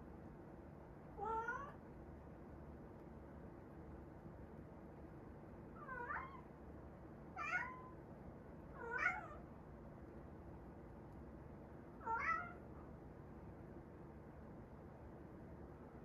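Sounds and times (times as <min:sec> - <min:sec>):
cat meowing: 0:01.2 - 0:01.8, 0:05.8 - 0:06.5, 0:07.4 - 0:08.0, 0:08.8 - 0:09.4, 0:12.0 - 0:12.6.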